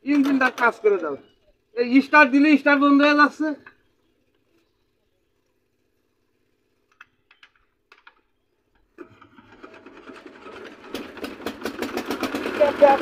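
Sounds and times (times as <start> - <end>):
diesel engine knocking: 10.5 - 13.0.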